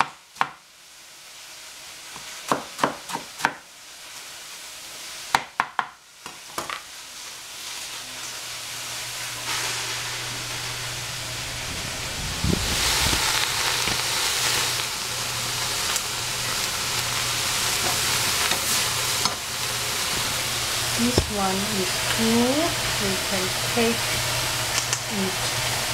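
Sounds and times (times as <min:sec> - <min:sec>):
food sizzling in a hot pan: 0:00.0 - 0:25.9
low steady hum: 0:09.4 - 0:25.9.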